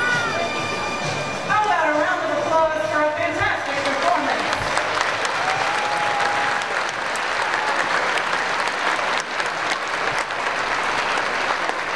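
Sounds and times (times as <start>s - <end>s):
crowd applauding: 3.5s - 11.9s.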